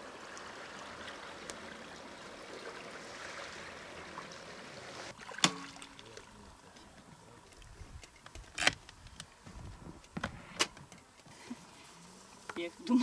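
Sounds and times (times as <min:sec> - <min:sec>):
water splashing around boat: 0:00.0 - 0:06.4.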